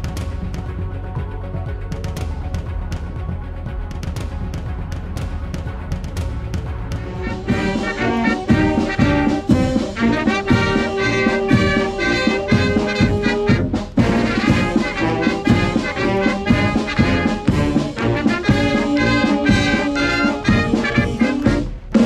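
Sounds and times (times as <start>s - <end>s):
brass band playing: 7.0s - 22.0s.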